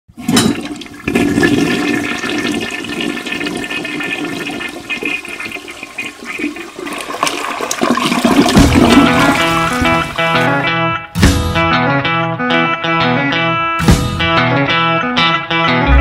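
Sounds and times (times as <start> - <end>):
toilet flushing: 0.1 - 10.6.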